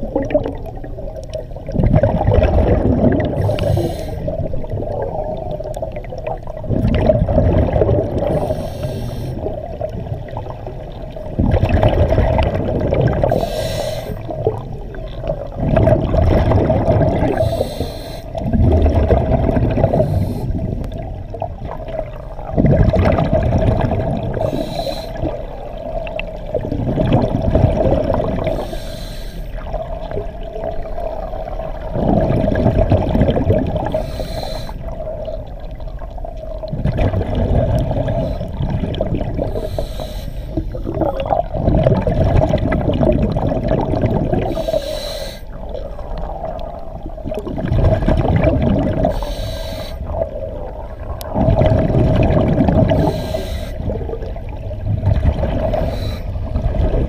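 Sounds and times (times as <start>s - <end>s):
exhaled bubbles rumbling underwater: 0.0s - 57.0s
regulator breath hiss: 3.4s - 4.3s, 8.3s - 9.4s, 13.3s - 14.3s, 17.4s - 18.4s, 20.0s - 20.5s, 24.4s - 25.3s, 28.5s - 29.6s, 33.9s - 34.9s, 39.5s - 40.8s, 44.5s - 45.6s, 49.1s - 50.1s, 53.0s - 53.8s, 55.8s - 56.4s.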